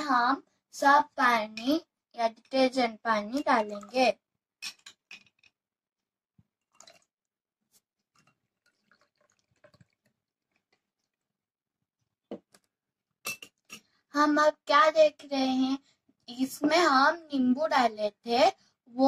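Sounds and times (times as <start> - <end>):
liquid pouring into a glass: 3.6 - 4.0, 6.6 - 7.2, 8.0 - 11.3
metal spoon clinking in glass: 13.3 - 13.8.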